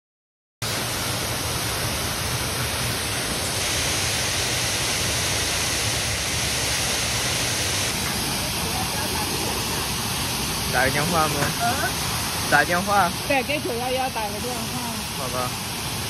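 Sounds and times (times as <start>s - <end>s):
water jet crashing down: 0.6s - 16.0s.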